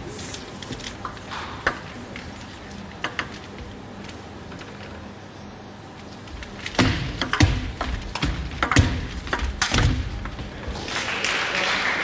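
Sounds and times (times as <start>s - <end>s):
applause: 10.9s - 12.0s.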